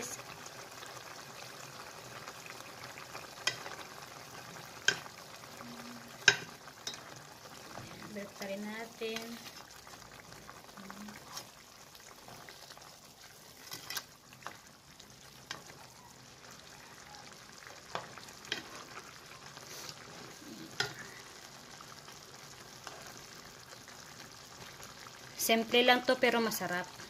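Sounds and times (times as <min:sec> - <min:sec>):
sauce simmering with crackle: 0:00.0 - 0:27.0
spatula scraping pan: 0:11.1 - 0:11.6, 0:13.2 - 0:14.6, 0:17.9 - 0:19.0.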